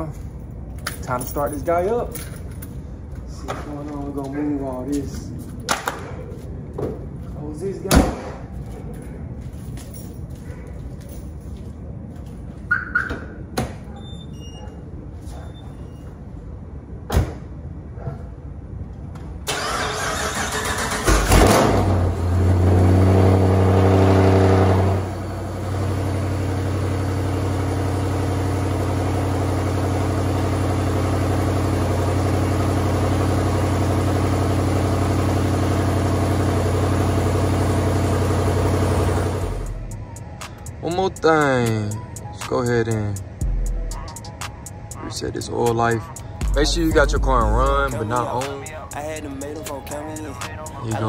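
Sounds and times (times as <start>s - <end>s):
car engine starting and idling: 19.4s - 40.9s, 43.4s - 51.0s.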